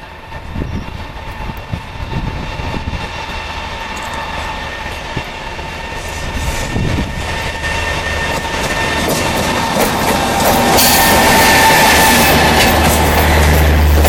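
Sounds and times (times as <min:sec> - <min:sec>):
electric locomotive high whine: 0:00.0 - 0:14.0
train low rumble: 0:00.0 - 0:14.0.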